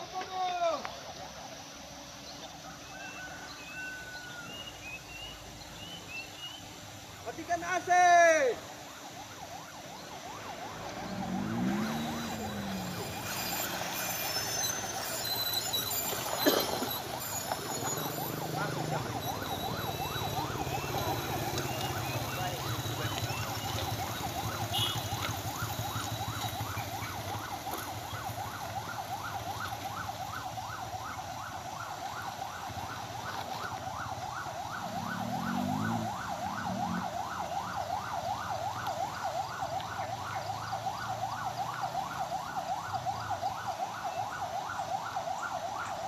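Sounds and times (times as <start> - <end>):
siren yelping: 0.0 - 5.5, 7.2 - 46.0.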